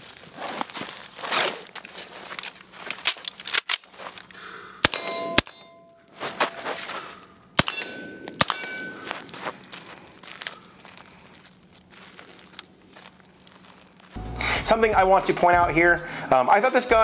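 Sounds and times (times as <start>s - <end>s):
rustling and scuffing: 0.0s - 4.3s, 6.0s - 7.4s, 8.8s - 14.8s
steel target ringing: 4.8s - 6.7s, 7.6s - 9.6s.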